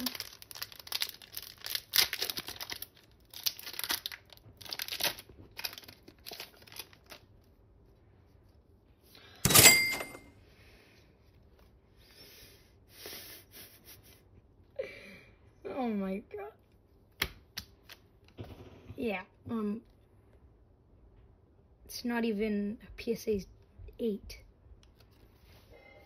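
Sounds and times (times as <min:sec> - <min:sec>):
cards rustling: 0:00.0 - 0:07.3
foil wrapper crinkling and tearing: 0:00.0 - 0:07.4.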